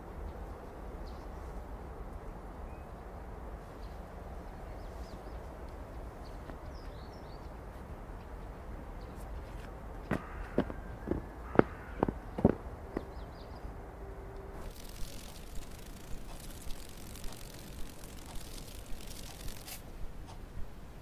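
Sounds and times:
low background rumble: 0:09.7 - 0:21.0.

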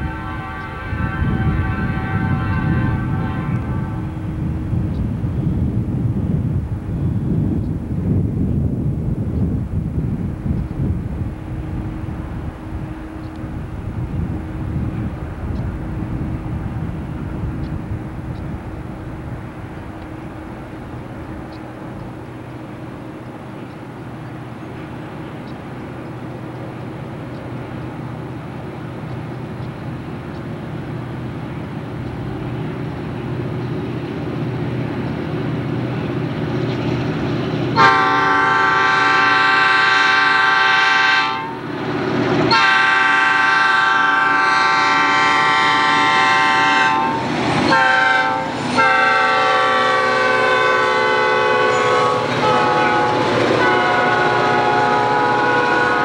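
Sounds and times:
locomotive air horn blasts: 0:00.0 - 0:04.3, 0:37.8 - 0:41.7, 0:42.5 - 0:56.0
diesel locomotive engines: 0:00.0 - 0:56.0.

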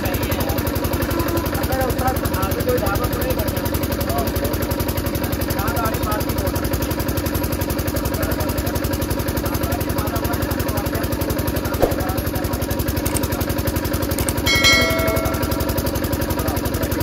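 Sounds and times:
high ringing tone: 0:14.2 - 0:16.0.

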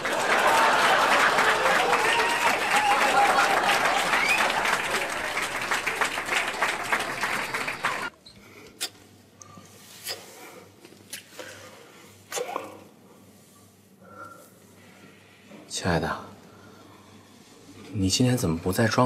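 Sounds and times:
breaths: 0:08.3 - 0:15.7, 0:16.3 - 0:17.8.

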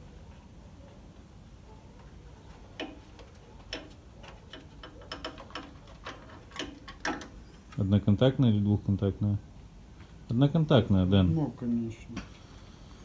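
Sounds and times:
small parts clicking on metal fender: 0:02.7 - 0:07.8.

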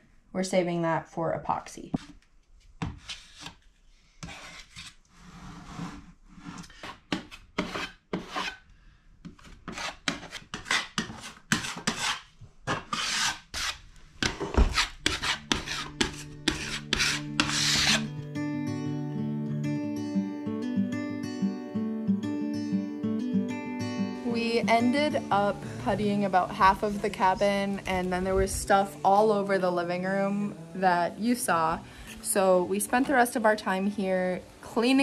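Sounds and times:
putty knife scraping filler: 0:02.8 - 0:08.6, 0:09.2 - 0:18.1.

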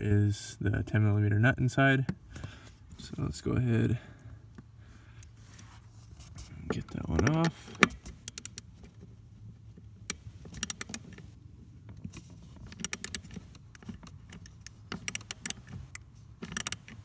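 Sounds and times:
ratchet clicking: 0:08.2 - 0:08.7, 0:10.1 - 0:11.1, 0:12.7 - 0:17.0.

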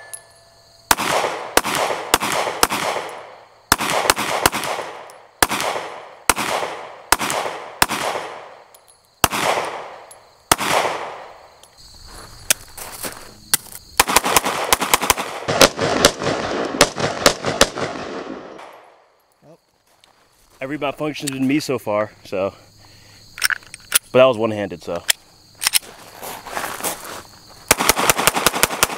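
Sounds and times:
pistol shots echoing: 0:00.9 - 0:11.4, 0:14.0 - 0:18.9, 0:27.7 - 0:28.9
gun handling clicks: 0:23.4 - 0:24.1, 0:25.0 - 0:25.8.

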